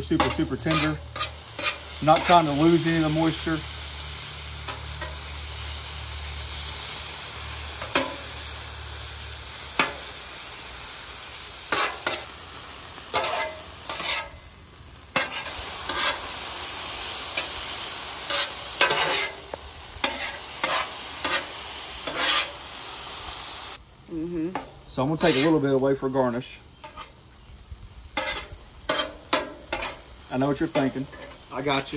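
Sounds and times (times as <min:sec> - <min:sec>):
metal spatula scraping and clacking: 0:00.0 - 0:02.6, 0:07.8 - 0:08.2, 0:11.7 - 0:12.3, 0:13.1 - 0:14.4, 0:15.2 - 0:16.2, 0:18.3 - 0:19.4, 0:20.0 - 0:22.5, 0:25.2 - 0:25.6, 0:26.8 - 0:27.2, 0:28.2 - 0:31.9
meat and vegetables sizzling on griddle: 0:00.0 - 0:31.9.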